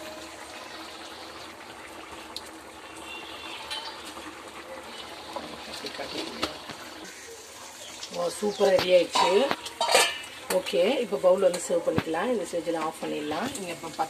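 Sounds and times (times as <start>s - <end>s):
thick gravy bubbling: 0.0s - 14.0s.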